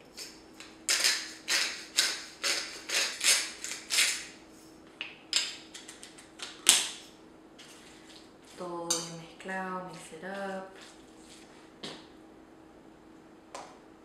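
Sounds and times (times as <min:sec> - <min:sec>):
spice grinder crunching: 0:00.1 - 0:04.4.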